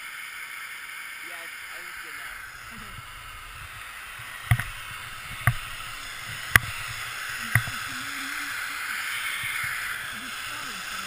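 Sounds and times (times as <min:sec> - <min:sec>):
skis hissing over snow: 0:00.0 - 0:11.0
sharp clicks: 0:02.3 - 0:11.0.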